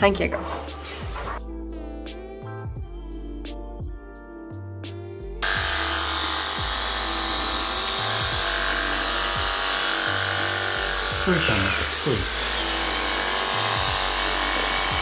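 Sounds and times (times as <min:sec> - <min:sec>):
electric clippers buzzing: 0:05.4 - 0:15.0.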